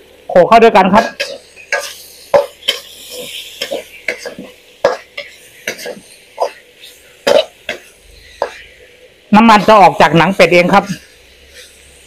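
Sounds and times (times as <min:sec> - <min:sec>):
faint sizzle: 0:00.0 - 0:12.0
metal ladle scraping a wok: 0:01.1 - 0:08.8.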